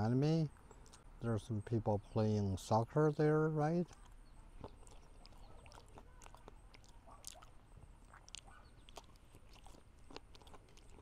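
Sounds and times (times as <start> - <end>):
chewing meat: 0.1 - 1.2, 3.6 - 11.0.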